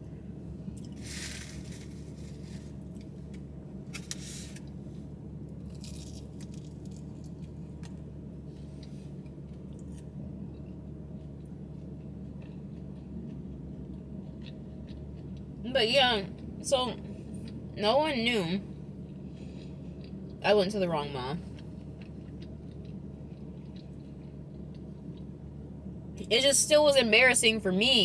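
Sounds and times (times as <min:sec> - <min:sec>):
low car hum: 0:00.0 - 0:28.0
paper napkin rustling: 0:01.0 - 0:02.8
chewing: 0:08.7 - 0:15.6, 0:19.0 - 0:20.4, 0:21.4 - 0:25.4.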